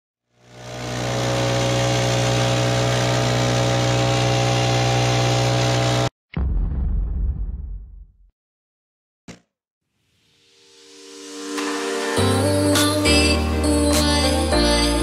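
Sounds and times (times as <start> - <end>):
leaf blower engine running: 0.3 - 6.1
sudden boom: 6.4 - 8.3.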